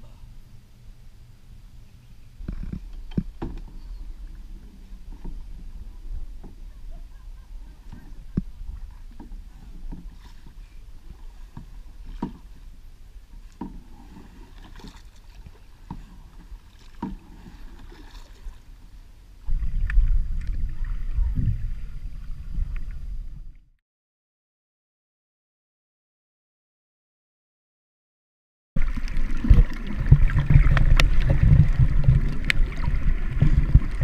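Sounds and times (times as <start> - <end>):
muffled underwater rumble: 0.0 - 23.8, 28.8 - 34.0
paddle splashing: 2.4 - 23.3, 28.8 - 34.0.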